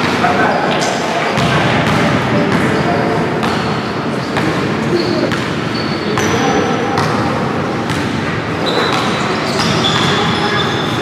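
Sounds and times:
echoing hall din: 0.0 - 11.0
sneaker squeaks: 2.5 - 7.2, 7.8 - 11.0.

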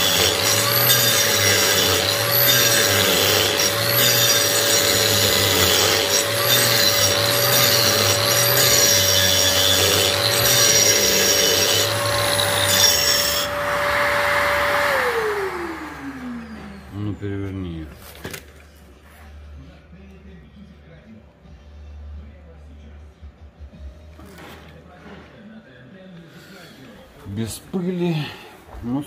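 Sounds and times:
angle grinder grinding concrete: 0.0 - 17.7.

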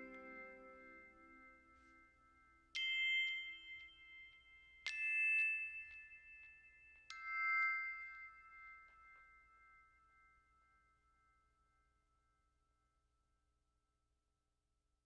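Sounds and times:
ringing bell-like notes: 0.0 - 11.6.

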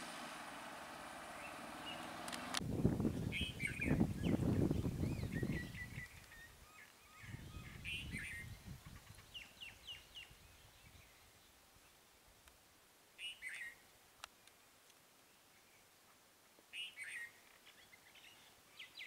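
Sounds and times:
low rumbling: 0.0 - 5.7
birds chirping: 0.0 - 11.2.

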